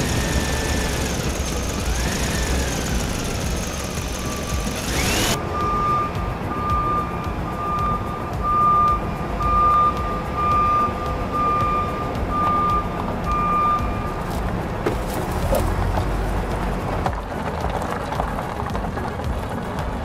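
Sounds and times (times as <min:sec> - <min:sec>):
electronic reversing beeps: 0:04.0 - 0:14.1.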